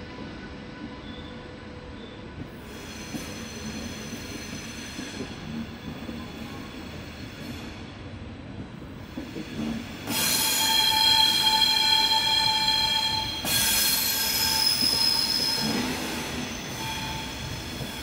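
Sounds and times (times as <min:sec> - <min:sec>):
loud wheel squeal: 0:10.1 - 0:18.0.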